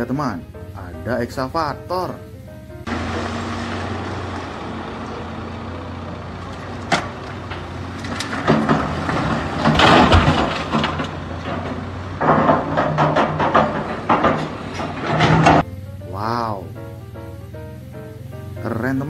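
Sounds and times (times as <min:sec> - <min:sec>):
diesel engine running: 0:00.0 - 0:19.0
rock crashing into steel truck bed: 0:02.9 - 0:15.6.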